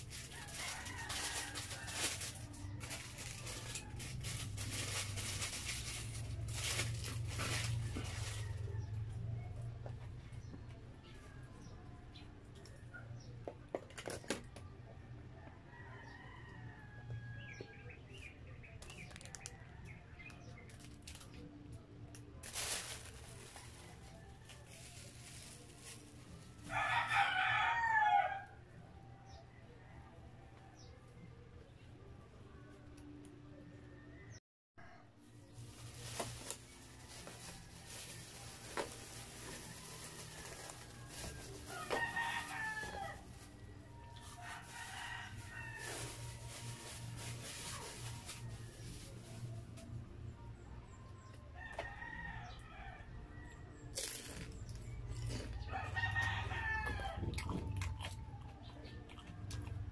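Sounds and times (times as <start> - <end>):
plastic bag crinkling: 0.0 - 8.5, 22.4 - 26.2, 35.5 - 43.5, 44.1 - 49.4
rooster crowing: 26.7 - 28.6, 39.6 - 43.2, 44.4 - 46.2, 55.3 - 58.5
person chewing: 57.2 - 59.7.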